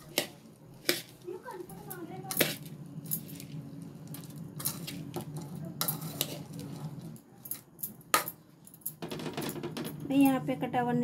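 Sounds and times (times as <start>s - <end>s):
puffed rice rustling in metal bowl: 0.0s - 8.2s.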